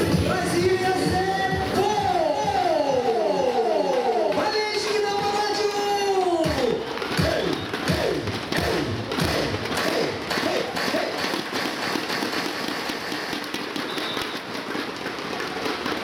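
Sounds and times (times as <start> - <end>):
stadium crowd hubbub: 0.0 - 16.0
faint voices: 0.2 - 11.3.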